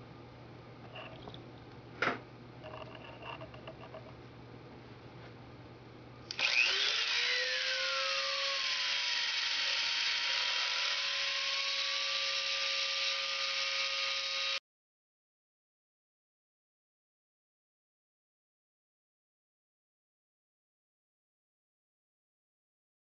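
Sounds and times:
grinding bit on wet glass: 0:02.6 - 0:04.1
rotary tool high whine: 0:06.3 - 0:14.6.

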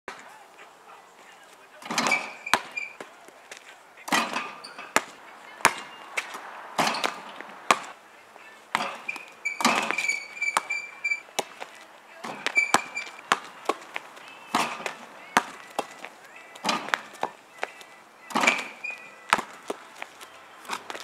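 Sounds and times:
basketball rim and backboard rattle: 0:01.8 - 0:03.1, 0:04.1 - 0:07.9, 0:08.7 - 0:11.6, 0:12.2 - 0:16.0, 0:16.6 - 0:17.2, 0:18.2 - 0:19.6
basketball bouncing on asphalt: 0:01.8 - 0:08.0, 0:08.7 - 0:21.0.

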